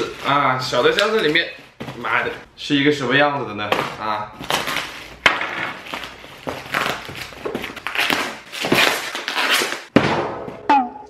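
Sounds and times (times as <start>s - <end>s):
plastic film crinkling: 0.0s - 2.4s, 3.6s - 9.9s.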